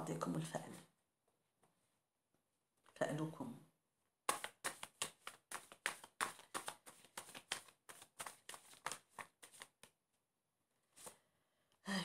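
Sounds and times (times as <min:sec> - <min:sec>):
cards being shuffled: 0:04.3 - 0:10.0, 0:10.9 - 0:11.2.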